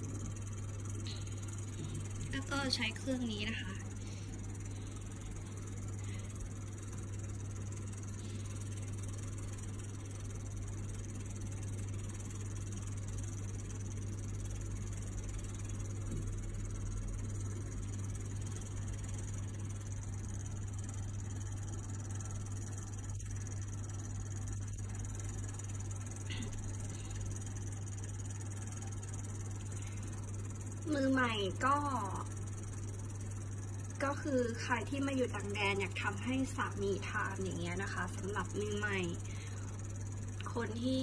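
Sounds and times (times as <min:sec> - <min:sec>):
constant even hiss: 0:00.0 - 0:41.0
low electrical hum: 0:00.0 - 0:41.0.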